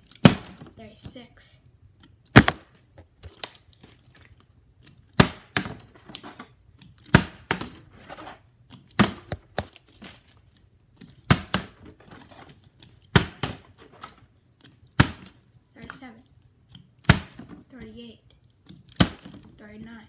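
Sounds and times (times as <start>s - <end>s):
plastic bottle landing on wooden floor: 2.4s - 2.7s.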